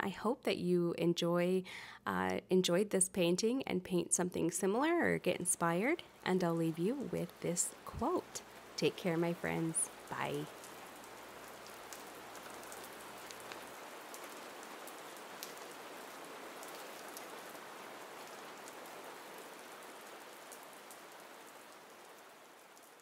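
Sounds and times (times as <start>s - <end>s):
steady rain hiss: 1.2s - 23.0s
rain drop ticks: 5.3s - 23.0s.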